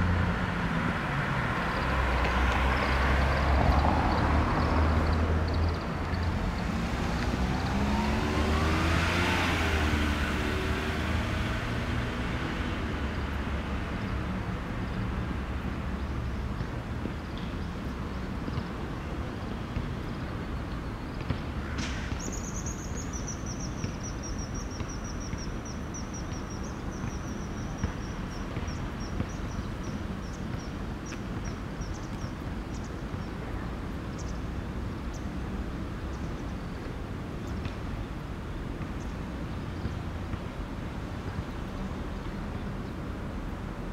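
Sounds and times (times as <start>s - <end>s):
vehicle passing: 0.0s - 13.8s
low traffic rumble: 0.0s - 43.9s.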